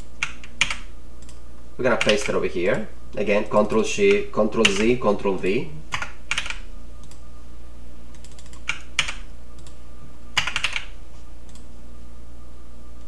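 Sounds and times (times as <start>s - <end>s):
keyboard keys clicking: 8.1s - 9.8s, 10.4s - 10.9s.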